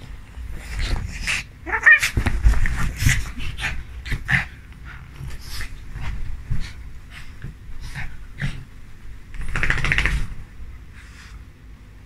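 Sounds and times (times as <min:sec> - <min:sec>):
rumbling from bedding: 0:00.0 - 0:11.1
dog panting and snuffling: 0:00.4 - 0:08.8
dog whining: 0:00.9 - 0:02.2.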